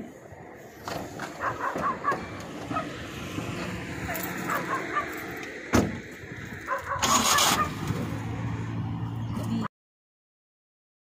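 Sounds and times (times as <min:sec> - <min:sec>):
car engine starting and idling: 0:00.8 - 0:09.6
car door shutting: 0:05.7 - 0:06.0.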